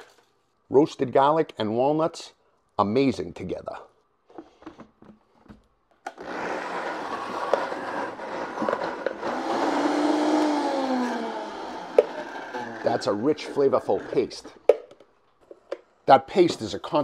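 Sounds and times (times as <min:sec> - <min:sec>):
blender running at high speed: 0:06.2 - 0:14.2.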